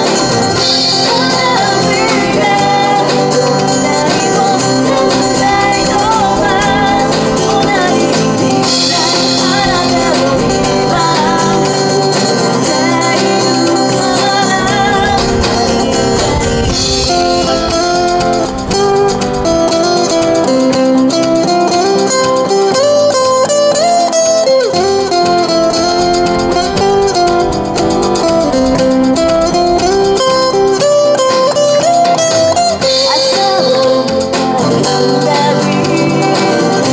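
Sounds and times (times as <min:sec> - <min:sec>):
woman singing: 0:00.0 - 0:20.7, 0:29.5 - 0:36.9
acoustic guitars strumming: 0:00.0 - 0:36.9.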